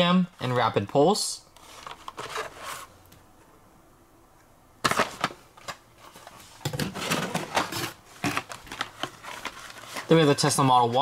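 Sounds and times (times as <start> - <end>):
cardboard and plastic packaging rustling: 1.6 - 3.0, 4.8 - 11.0.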